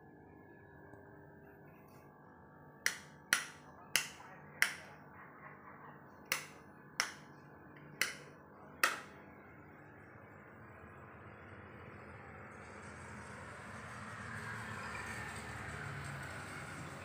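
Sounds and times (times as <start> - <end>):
faint low hum: 0.0 - 13.4.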